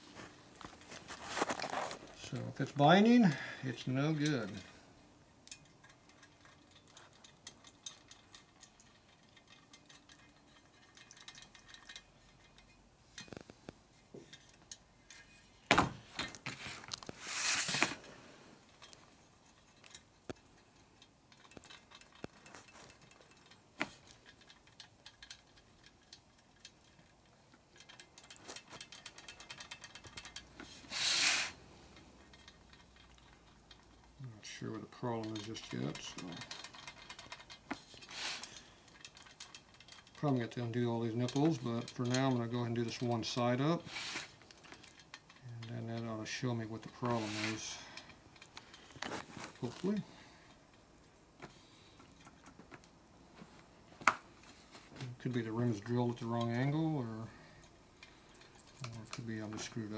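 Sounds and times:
metal spokes clicking: 0:00.4 - 0:53.1, 0:53.7 - 0:59.9
metal rattle: 0:05.4 - 0:53.0.

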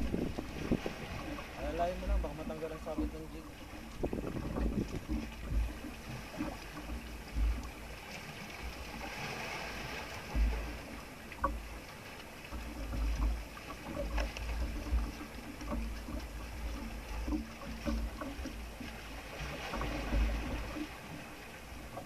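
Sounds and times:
wind buffeting microphone: 0:00.0 - 0:07.7
water washing: 0:00.0 - 0:22.0.

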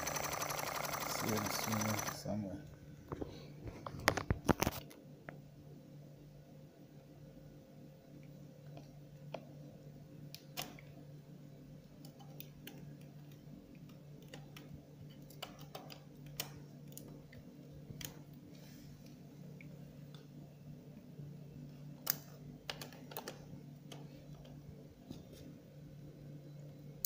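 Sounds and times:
water pump humming: 0:00.0 - 0:02.2.

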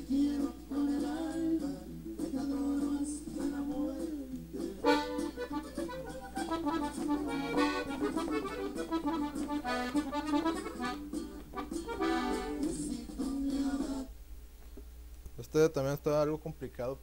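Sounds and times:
button accordion playing quick notes: 0:04.8 - 0:12.8.

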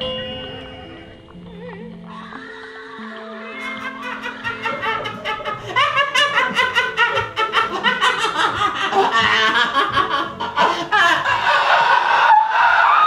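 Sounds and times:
music: 0:00.0 - 0:13.0
person laughing manically: 0:03.6 - 0:12.8.

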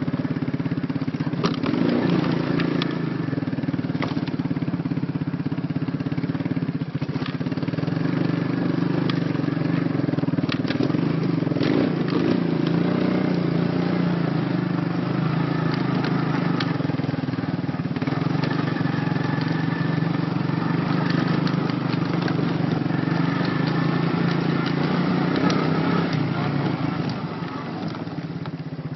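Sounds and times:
quad bike engine running: 0:00.0 - 0:28.9.

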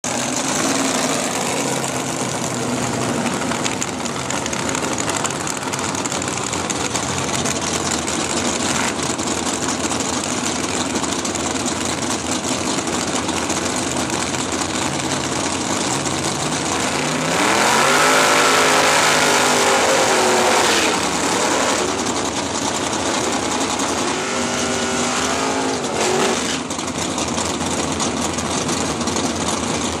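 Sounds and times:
race car engine revving: 0:13.1 - 0:27.0.

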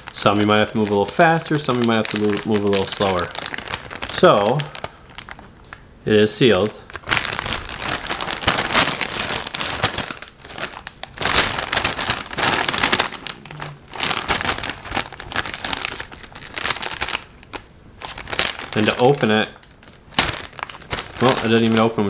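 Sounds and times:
foil chip bag crinkling: 0:00.0 - 0:05.8, 0:06.4 - 0:22.0.

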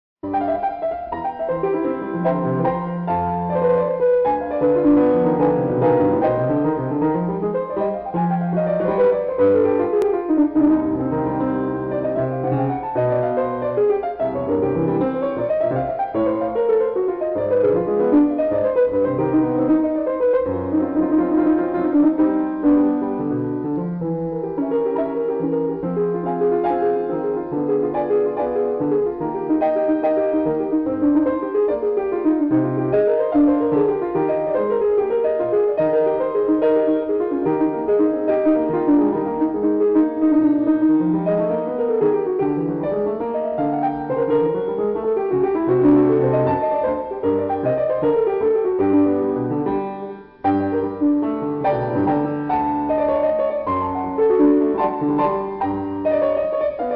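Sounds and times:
piano music: 0:00.2 - 0:56.9.

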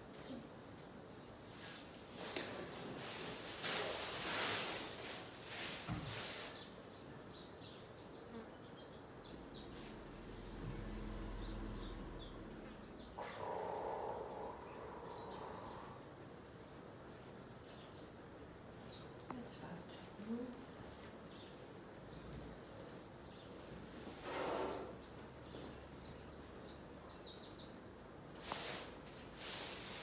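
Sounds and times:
rustling of leafy branches and hay: 0:01.4 - 0:07.1, 0:28.4 - 0:30.0.

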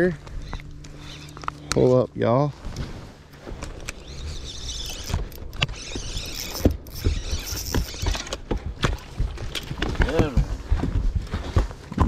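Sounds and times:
fishing reel clicking: 0:03.8 - 0:08.4.

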